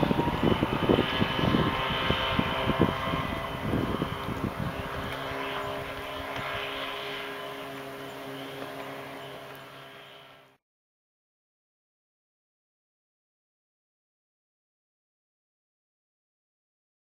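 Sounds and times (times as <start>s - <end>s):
outboard engine drone: 0.0s - 10.6s.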